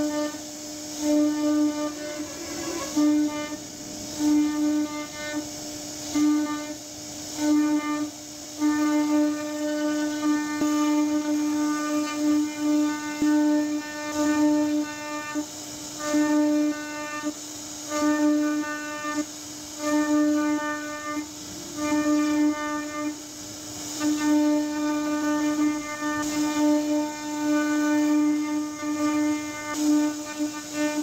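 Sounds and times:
faint hiss of cutting wood: 0.0 - 31.0
router spindle whining: 1.9 - 4.1.

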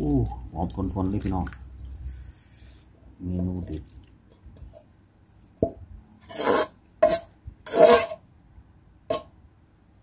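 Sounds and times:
soup splashing into bowl: 0.0 - 2.8.

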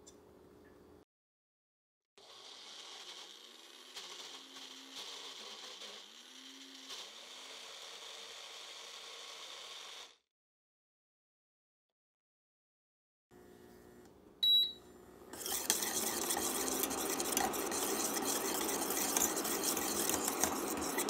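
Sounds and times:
blender motor running: 2.2 - 10.2, 15.2 - 21.0.

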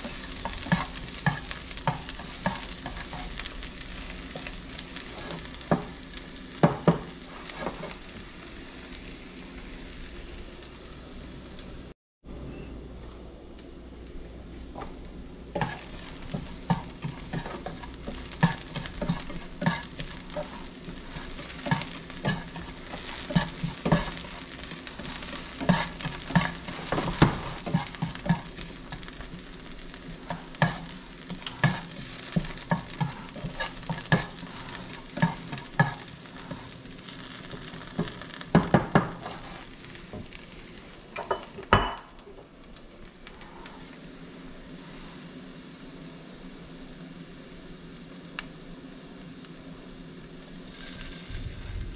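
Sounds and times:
food sizzling in hot oil: 0.0 - 12.0, 15.4 - 51.9
utensil scraping a pan: 15.6 - 28.8, 30.1 - 36.7, 38.0 - 39.7.

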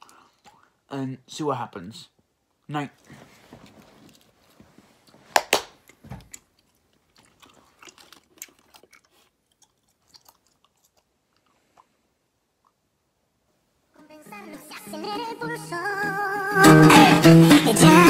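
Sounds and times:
gum chewing mouth smacks: 6.2 - 11.9.

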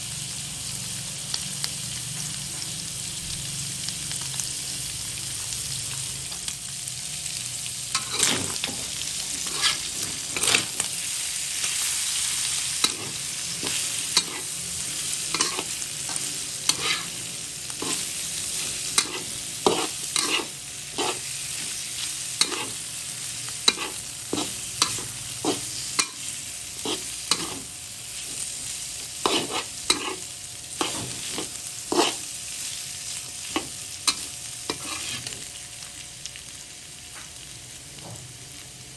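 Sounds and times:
food sizzling in a wok: 0.0 - 38.9
metal spatula scraping wok: 7.9 - 11.0, 12.7 - 21.8, 22.4 - 22.9, 23.6 - 32.3, 33.4 - 35.4.

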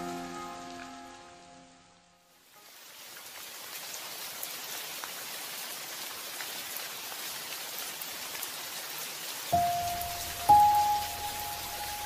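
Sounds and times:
steady rain falling: 0.0 - 12.0
sustained musical note: 9.6 - 12.0.

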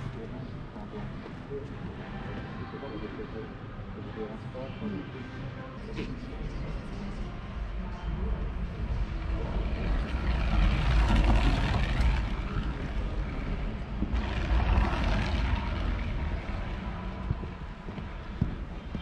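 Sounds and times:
bicycle wheels whirring past: 9.7 - 17.4.

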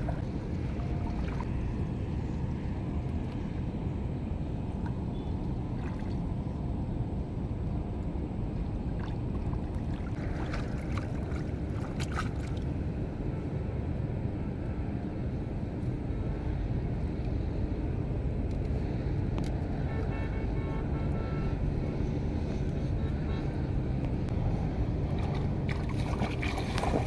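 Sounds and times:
water splashing and dripping: 0.0 - 1.5, 8.9 - 12.7, 25.1 - 27.0
steady low rumble: 0.0 - 19.9, 21.1 - 27.0.

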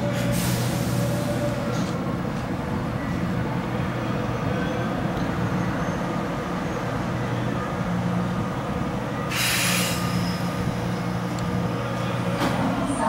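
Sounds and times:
train wheels rumbling on rail: 0.0 - 13.0
burst of hiss: 9.3 - 10.0.

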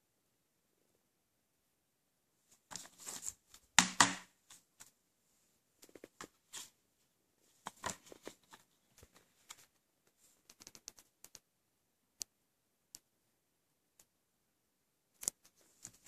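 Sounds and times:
small taps and scrapes: 7.6 - 11.4.

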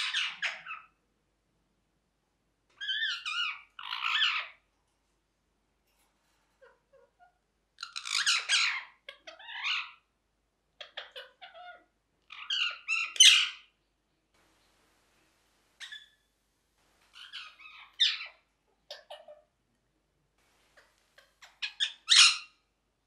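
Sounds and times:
parakeet squawking: 0.0 - 0.9, 2.8 - 4.6, 6.6 - 10.1, 10.8 - 13.7, 15.8 - 16.3, 17.1 - 19.5, 20.6 - 22.6.

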